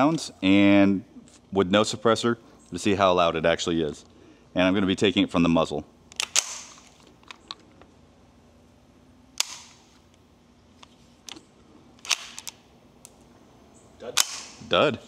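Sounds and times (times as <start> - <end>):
rifle shots with echo: 14.2 - 14.6.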